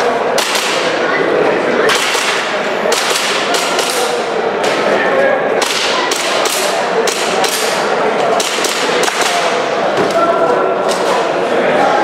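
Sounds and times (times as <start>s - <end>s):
airsoft pistol shots: 0.4s - 0.9s, 1.9s - 4.1s.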